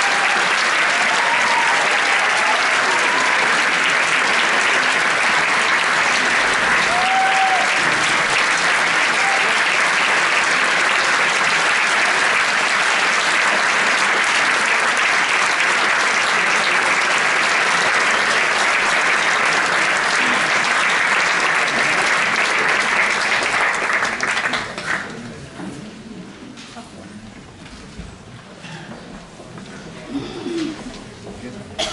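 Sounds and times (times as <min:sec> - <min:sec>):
audience applauding: 0:00.0 - 0:25.3.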